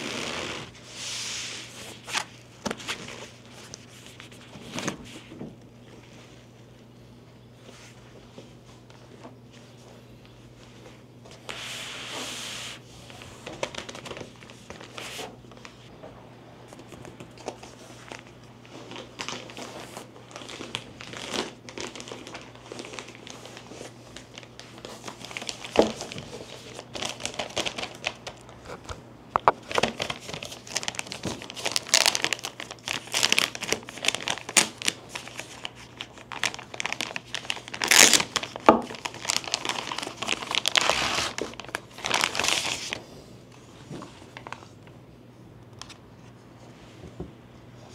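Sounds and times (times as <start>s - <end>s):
plastic wrapping crinkling: 13.1s - 15.9s, 16.8s - 43.0s.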